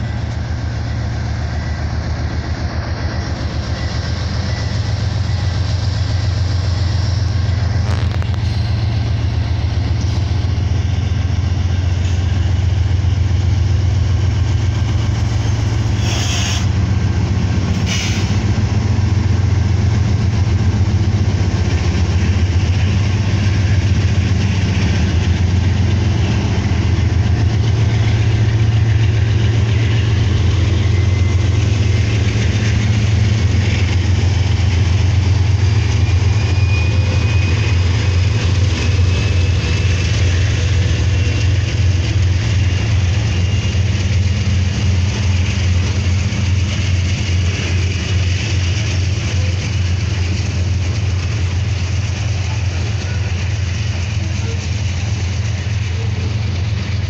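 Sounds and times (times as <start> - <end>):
diesel locomotive engines droning: 0.0 - 57.0
train wheels rolling: 0.0 - 57.0
short air hisses: 16.0 - 16.7, 17.7 - 18.4.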